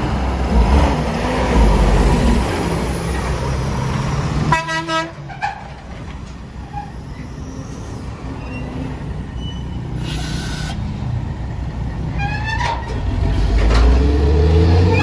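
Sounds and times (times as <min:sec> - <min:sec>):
diesel truck engine running: 0:05.7 - 0:15.0.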